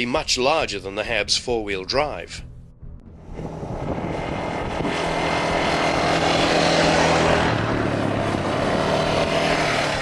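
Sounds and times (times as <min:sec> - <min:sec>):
vehicle engine running: 0:02.5 - 0:10.0.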